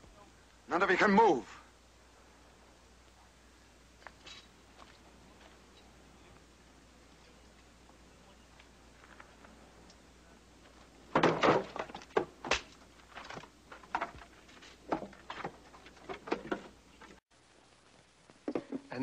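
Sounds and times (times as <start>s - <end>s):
wooden knocks of barrels and crates: 11.1s - 17.2s.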